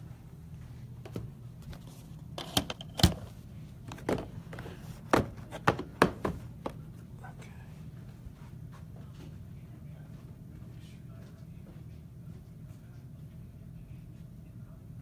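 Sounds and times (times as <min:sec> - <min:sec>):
card boxes knocking on a table: 0:03.9 - 0:06.8.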